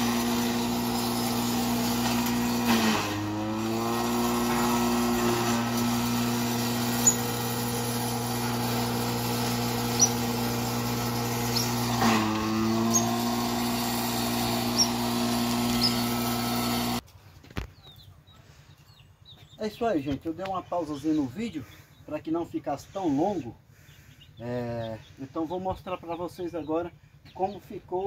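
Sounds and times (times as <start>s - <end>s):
forage chopper grinding: 0.0s - 17.0s.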